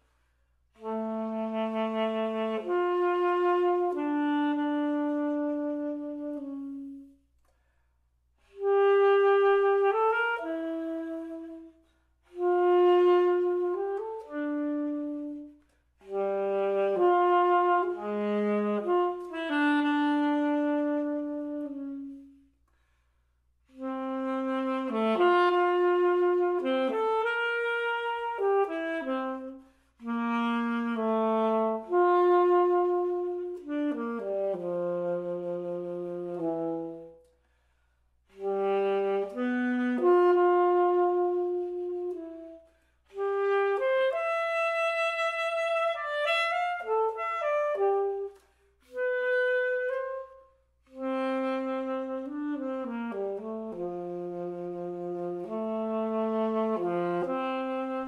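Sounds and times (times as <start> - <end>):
solo saxophone playing: 0.0 - 58.0.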